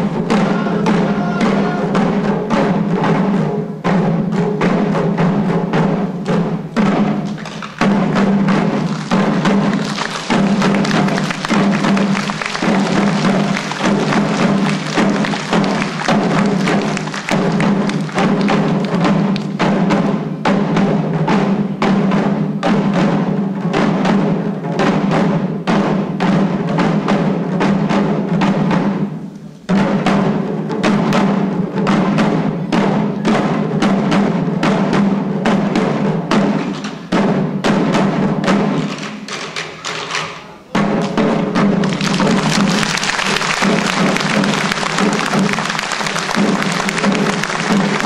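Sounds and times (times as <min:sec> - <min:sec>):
drums beaten in fast rhythm: 0:00.0 - 0:48.0
applause: 0:07.2 - 0:07.9, 0:08.6 - 0:19.6, 0:41.8 - 0:48.0.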